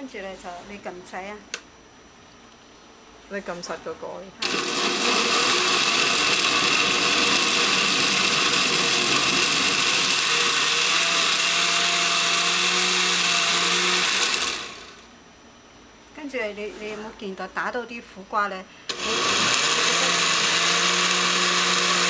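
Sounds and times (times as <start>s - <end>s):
blender motor running: 4.4s - 15.0s, 18.9s - 22.0s.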